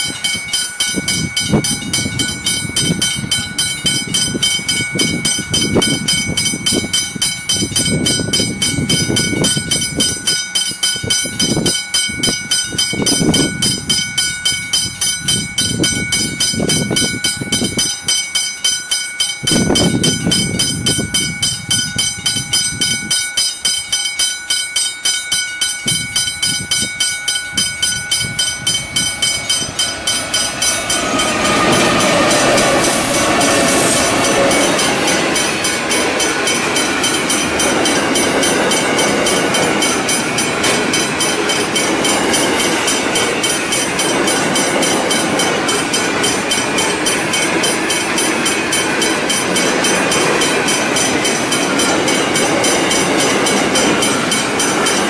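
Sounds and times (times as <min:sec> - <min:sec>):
level crossing bells ringing: 0:00.0 - 0:55.0
diesel locomotive engine: 0:25.8 - 0:55.0
train wheels clattering: 0:25.9 - 0:55.0.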